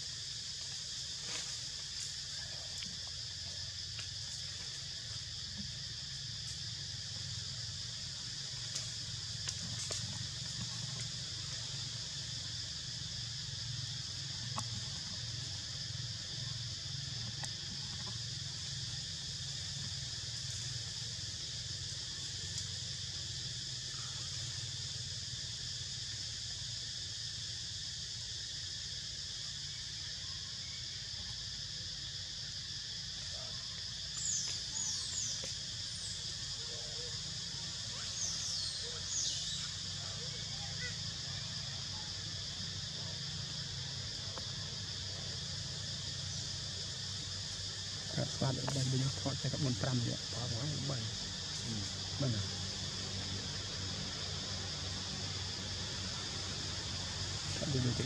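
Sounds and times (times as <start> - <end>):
insects droning: 0.0 - 58.0.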